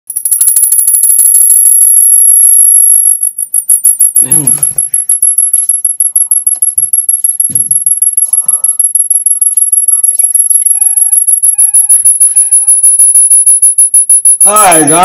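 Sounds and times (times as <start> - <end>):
high electronic tone pulsing: 0.4 - 15.0
short electronic beeps: 9.6 - 15.0.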